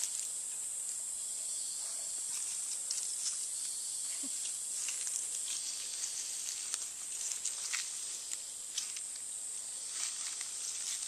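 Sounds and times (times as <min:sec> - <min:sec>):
high-pitched insect drone: 0:00.0 - 0:11.0
faint clicks and rustles: 0:02.3 - 0:09.3.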